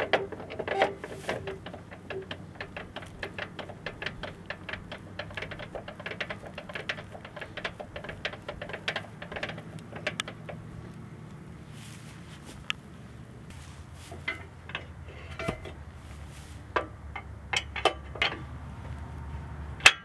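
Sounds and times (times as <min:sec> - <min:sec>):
hand crank metal clicks: 0:00.0 - 0:10.7.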